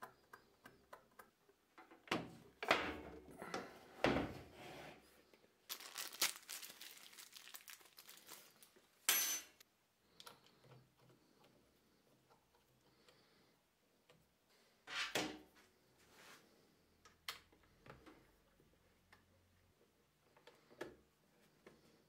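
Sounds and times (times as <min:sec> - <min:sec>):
plastic bag crinkling: 0:05.7 - 0:09.1.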